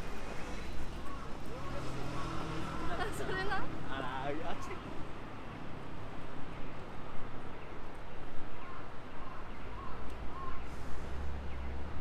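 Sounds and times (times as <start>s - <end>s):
busy city street ambience: 0.0s - 12.0s.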